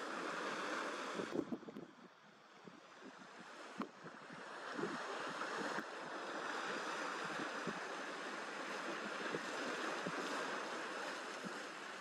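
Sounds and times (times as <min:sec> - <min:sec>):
sea surf: 0:00.0 - 0:12.0
wind buffeting microphone: 0:01.1 - 0:02.0.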